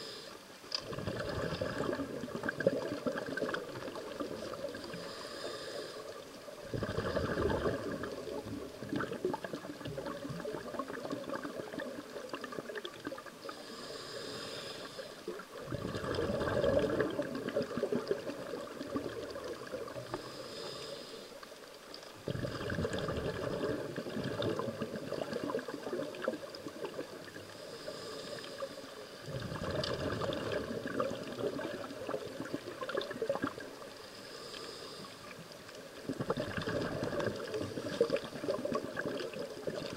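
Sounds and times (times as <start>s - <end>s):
regulator hiss on inhale: 0.0s - 2.0s, 3.5s - 7.3s, 13.2s - 15.6s, 19.7s - 22.1s, 26.2s - 29.4s, 33.3s - 36.1s, 37.2s - 39.3s
underwater bubbling on exhale: 0.7s - 20.8s, 22.1s - 39.9s.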